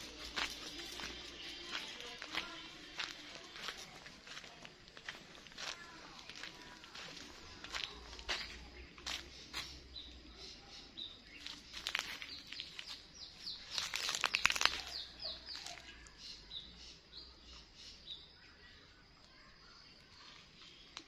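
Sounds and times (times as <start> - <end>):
leaves and twigs rustling: 0.0 - 9.8, 11.3 - 16.1
small birds chirping: 0.0 - 21.0.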